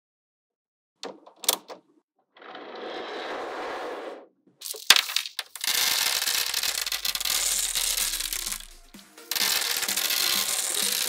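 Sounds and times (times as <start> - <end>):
magnetic balls clicking and rattling: 4.6 - 11.0
background music: 6.1 - 11.0.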